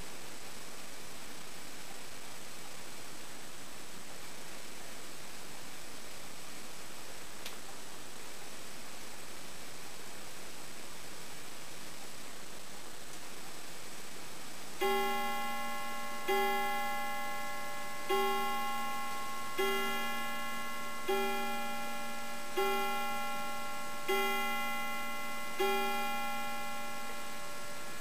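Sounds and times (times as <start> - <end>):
mantel clock striking: 14.8 - 28.0.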